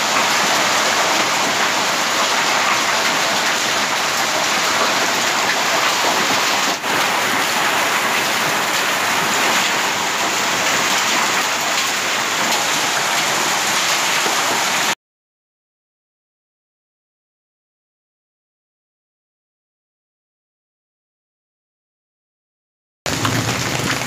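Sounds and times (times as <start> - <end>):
heavy rain and hail on pavement: 0.0 - 15.0, 23.1 - 24.0.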